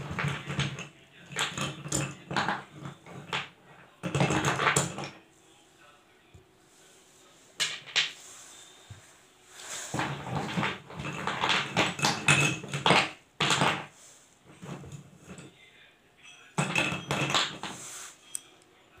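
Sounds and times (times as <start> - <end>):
pencils clattering against clay pots: 0.0 - 5.2, 7.5 - 8.2, 9.6 - 15.6, 16.2 - 18.6.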